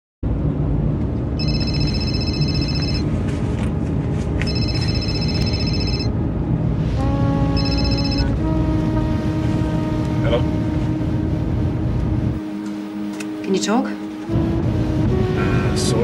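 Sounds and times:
phone ringing electronic trill: 1.4s - 3.0s, 4.5s - 6.1s, 7.6s - 8.3s
sustained low music notes: 6.1s - 16.0s.

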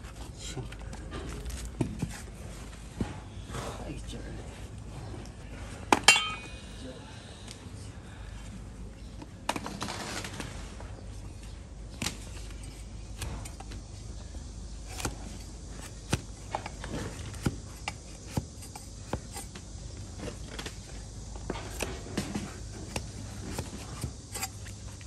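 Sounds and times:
hoof being trimmed clicks: 12.0s - 13.8s, 14.9s - 19.7s, 21.5s - 25.0s.

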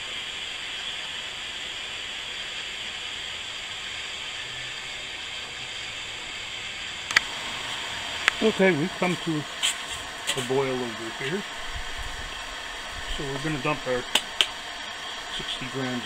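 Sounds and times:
gas burner hissing: 0.0s - 16.0s
sharp click: 14.1s - 14.6s.

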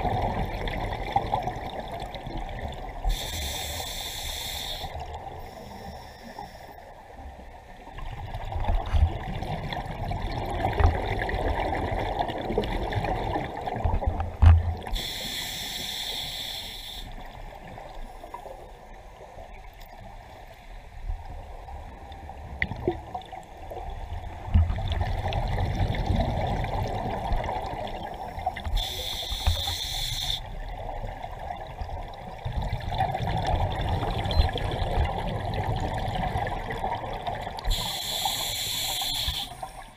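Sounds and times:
exhaled bubbles gurgling: 0.0s - 3.3s, 8.0s - 15.2s, 21.8s - 39.9s
regulator hissing inhalations: 3.1s - 6.8s, 14.9s - 17.2s, 28.7s - 30.5s, 37.7s - 39.9s.

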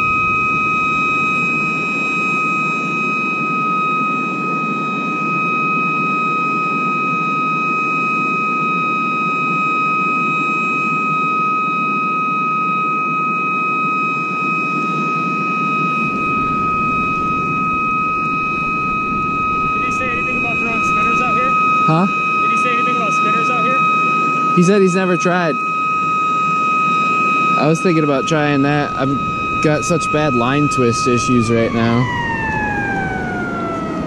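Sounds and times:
alarm high steady tone: 0.0s - 34.0s.

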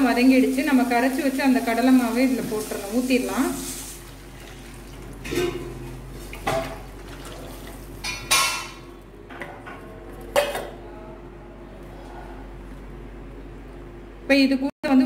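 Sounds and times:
metal cookware clanking: 5.2s - 5.8s, 8.0s - 10.8s.

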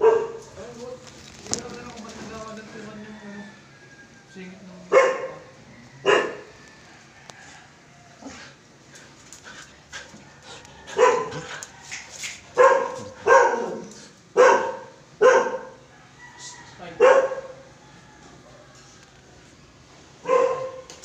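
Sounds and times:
dog barking: 0.0s - 0.4s, 4.9s - 6.5s, 10.9s - 11.5s, 12.6s - 15.8s, 17.0s - 17.6s, 20.2s - 20.9s.

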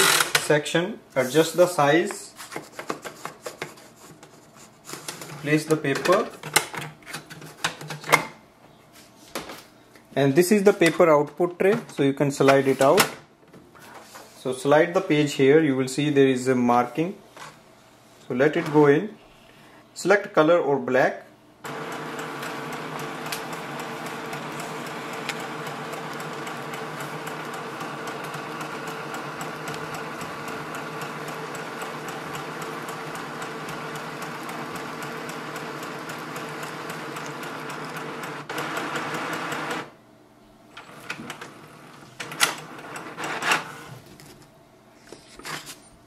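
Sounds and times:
printer motor whirring: 0.0s - 0.4s, 21.6s - 39.9s.

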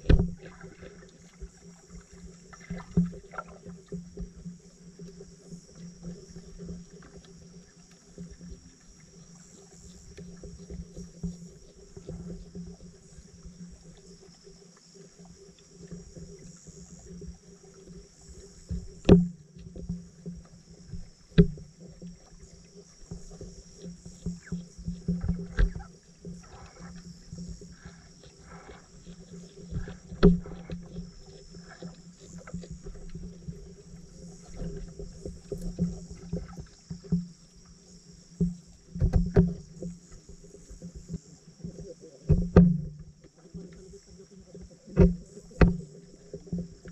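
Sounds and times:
sharp underwater clicks and knocks: 0.0s - 1.5s, 18.7s - 22.2s, 23.1s - 37.4s, 38.3s - 43.9s, 44.9s - 46.9s
low underwater hum: 0.0s - 46.9s.

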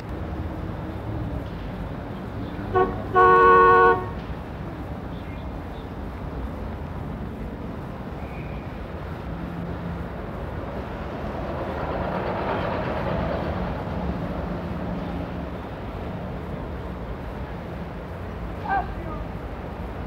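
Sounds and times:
city street traffic rumble: 0.0s - 20.0s.

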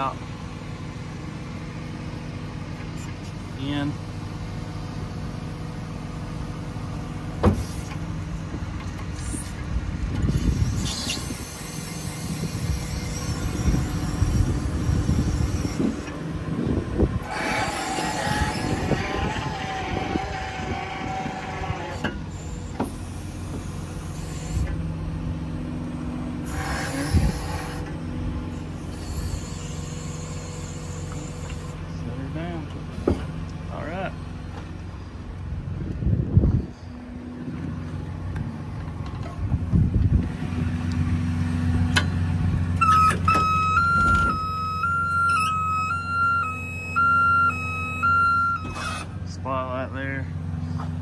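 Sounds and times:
diesel truck engine running: 0.0s - 51.0s
hydraulic hiss and whine: 10.2s - 16.2s, 17.2s - 24.9s, 26.4s - 31.9s, 42.8s - 49.3s.

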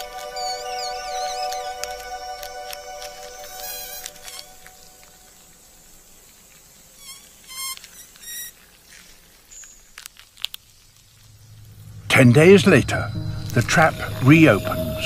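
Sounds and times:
fly buzzing: 0.0s - 5.3s.

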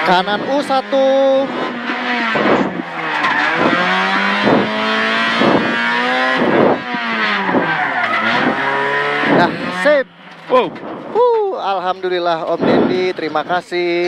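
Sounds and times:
car engine revving hard: 0.0s - 11.1s.

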